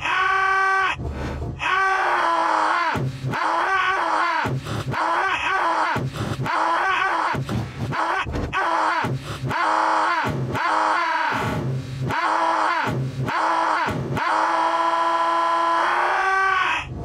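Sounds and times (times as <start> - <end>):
cartoon man wailing and sobbing: 1.6 - 11.4.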